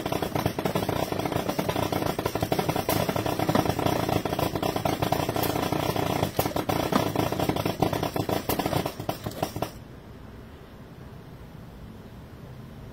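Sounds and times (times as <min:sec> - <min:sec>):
motor hum: 0:00.0 - 0:09.8
rapid clattering metal clicks: 0:00.0 - 0:09.8.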